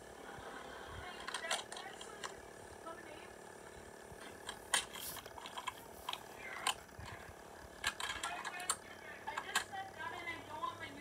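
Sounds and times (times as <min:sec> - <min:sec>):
sharp mechanical clicks: 0:01.2 - 0:02.4, 0:07.8 - 0:09.8.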